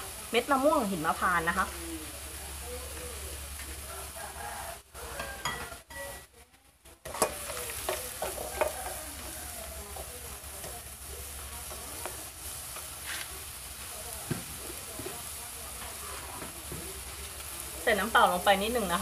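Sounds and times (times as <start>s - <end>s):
food sizzling in oil: 0.0s - 19.0s
spatula scraping a pan: 7.1s - 10.1s.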